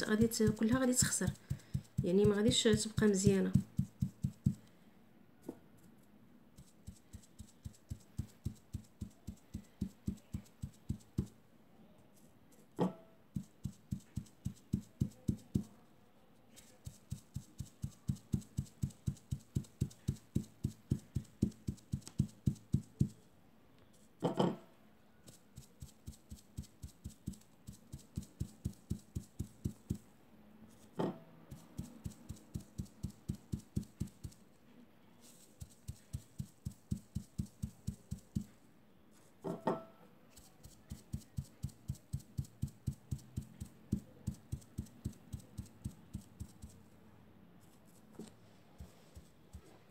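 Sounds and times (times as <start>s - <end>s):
sponge tapping on cloth: 0.0s - 4.6s, 6.6s - 11.4s, 12.8s - 15.7s, 16.8s - 23.2s, 25.5s - 30.1s, 31.0s - 34.4s, 35.6s - 38.6s, 40.6s - 46.8s.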